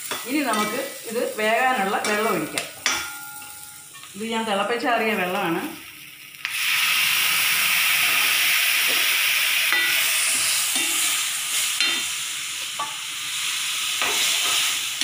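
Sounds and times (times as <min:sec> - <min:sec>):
water sizzling in hot pan: 0:00.0 - 0:15.0
steel spoon scraping pan: 0:09.7 - 0:12.1.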